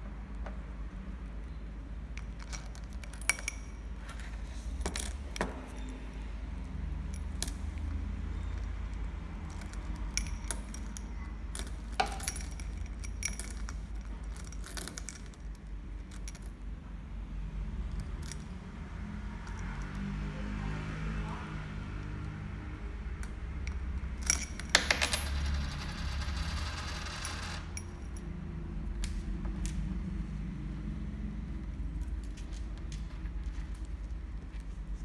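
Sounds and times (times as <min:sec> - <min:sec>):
coins clinking in glass bowl: 0:09.4 - 0:16.5, 0:23.6 - 0:28.3.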